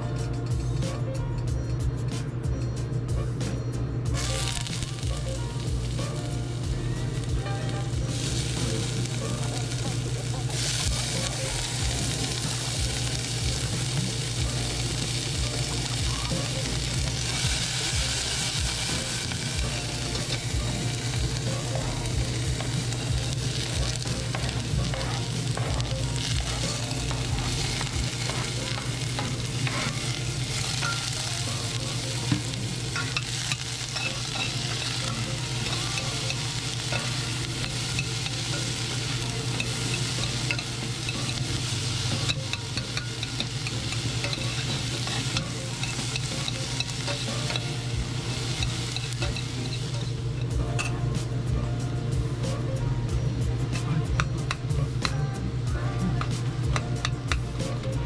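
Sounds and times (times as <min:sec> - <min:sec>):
vegetables sizzling in a pan: 0:04.1 - 0:58.0
metal spoon clinking against pan: 0:32.9 - 0:41.6, 0:42.2 - 0:47.9, 0:48.5 - 0:51.0.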